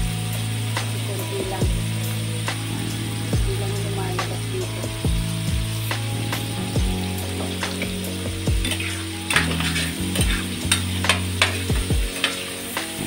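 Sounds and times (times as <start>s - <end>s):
food sizzling: 0.0s - 13.0s
spatula scraping and tapping pan: 7.3s - 13.0s.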